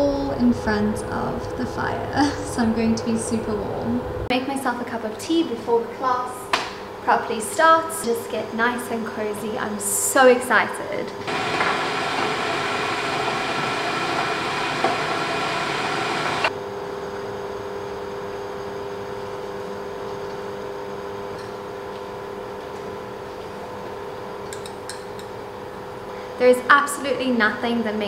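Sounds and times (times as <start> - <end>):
electric kettle boiling: 11.2 - 16.5.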